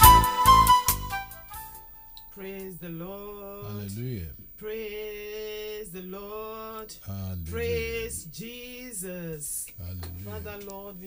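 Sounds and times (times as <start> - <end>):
man singing long notes: 7.1 - 8.4, 9.8 - 10.7.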